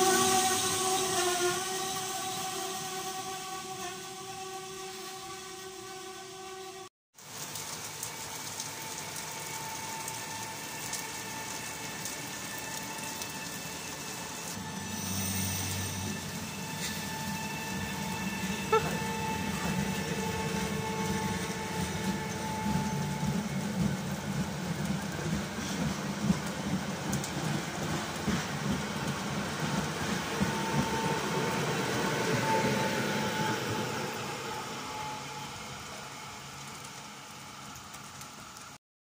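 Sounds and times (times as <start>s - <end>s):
electric train hum: 0.0s - 6.9s, 7.6s - 38.8s
rain hissing: 7.2s - 38.8s
train wheels rumbling on rails: 8.7s - 38.8s.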